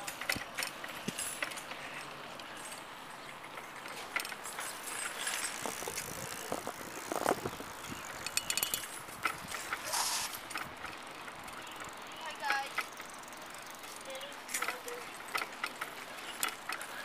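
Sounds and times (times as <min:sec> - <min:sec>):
bike tyres rolling over ground: 0:00.0 - 0:17.0
rattles and clicks: 0:00.0 - 0:17.0.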